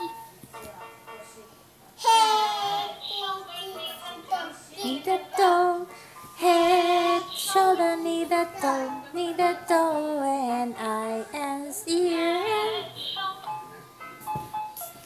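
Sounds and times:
girl singing: 0:02.0 - 0:13.5.

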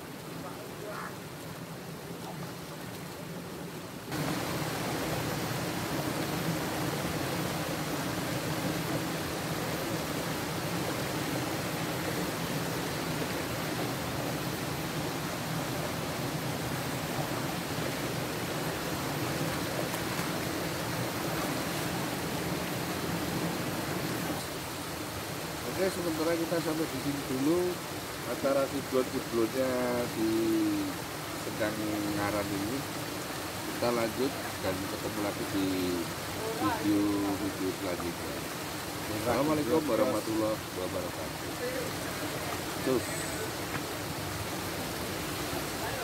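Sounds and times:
flowing spring water: 0:00.0 - 0:46.0.

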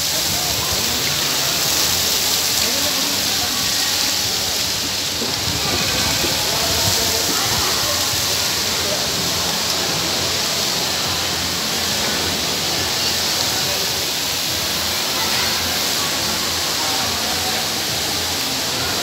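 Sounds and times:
fountain water splashing into basin: 0:00.0 - 0:19.0.

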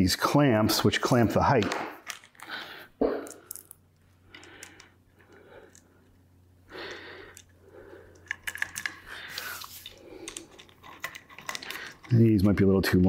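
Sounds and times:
soft breaths: 0:02.4 - 0:12.1.

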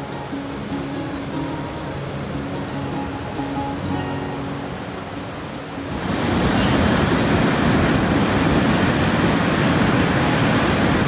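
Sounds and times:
background music: 0:00.0 - 0:06.8
ocean surf breaking on beach: 0:00.0 - 0:11.0
wind buffeting microphone: 0:00.0 - 0:11.0.

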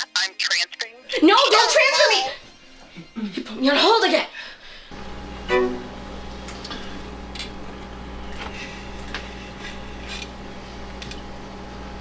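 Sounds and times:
electrical hum: 0:04.6 - 0:12.0.

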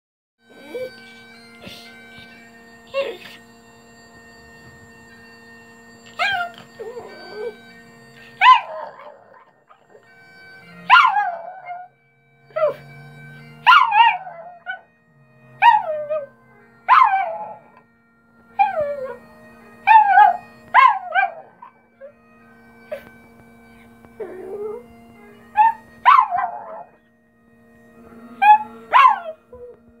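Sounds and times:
bagpipe drone: 0:00.4 - 0:30.0
dog howling: 0:00.5 - 0:01.9, 0:06.1 - 0:10.0, 0:10.8 - 0:11.9, 0:13.6 - 0:14.9, 0:15.6 - 0:17.8, 0:19.8 - 0:22.2, 0:23.8 - 0:27.0, 0:28.0 - 0:29.8.

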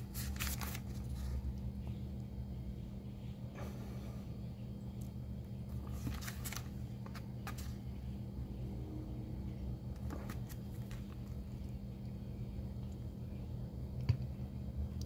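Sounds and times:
paper pages flipping: 0:00.0 - 0:01.4, 0:05.7 - 0:07.9, 0:10.0 - 0:11.4
steady low hum: 0:00.0 - 0:15.0.

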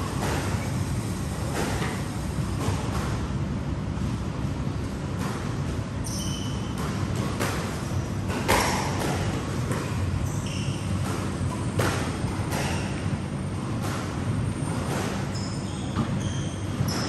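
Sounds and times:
shoe squeaks on wooden floor: 0:06.0 - 0:06.8, 0:10.2 - 0:11.0, 0:15.3 - 0:17.0
squash ball hits: 0:06.6 - 0:13.2.

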